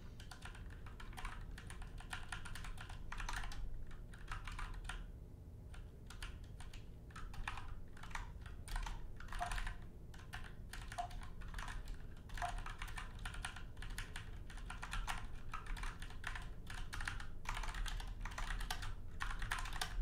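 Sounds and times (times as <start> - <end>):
typing on computer keyboard: 0.2 - 5.1, 5.7 - 20.0.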